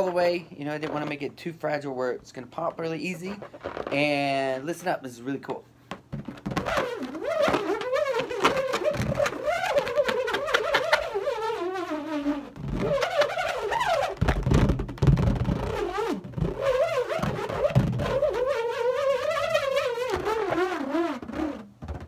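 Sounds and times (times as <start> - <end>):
nut rattling in a balloon: 3.0 - 4.3, 5.9 - 22.0
nut spinning in a balloon: 6.2 - 22.0.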